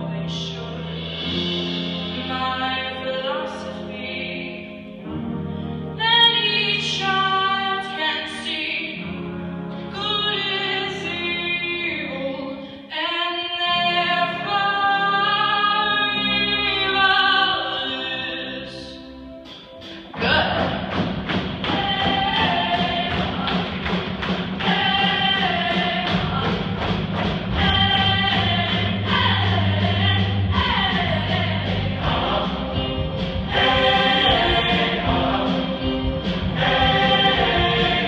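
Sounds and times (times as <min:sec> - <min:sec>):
choir and accompaniment chords: 0:00.0 - 0:12.9, 0:13.7 - 0:38.0
woman singing with vibrato: 0:02.1 - 0:04.7, 0:10.0 - 0:19.0, 0:21.6 - 0:23.7, 0:24.6 - 0:26.6, 0:27.5 - 0:35.8.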